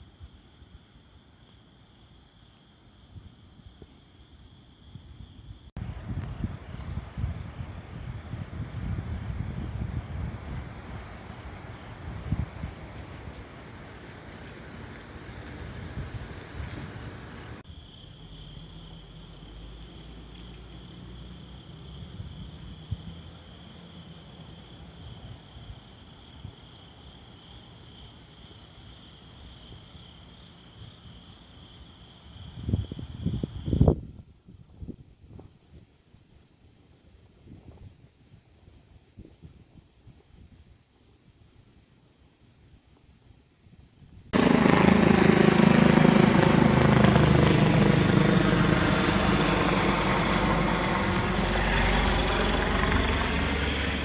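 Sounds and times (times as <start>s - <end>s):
night insects chirping: 0.0s - 54.0s
helicopter rotor and engine: 44.4s - 54.0s.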